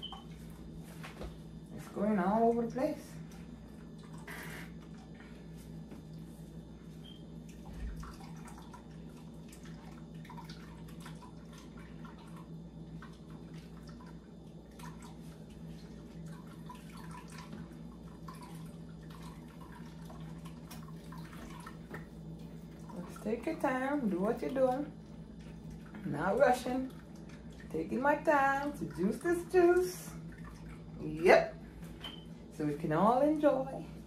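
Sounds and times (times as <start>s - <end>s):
steady low hum: 0.0s - 34.0s
juice dripping into pitcher: 3.2s - 6.4s, 7.1s - 31.1s.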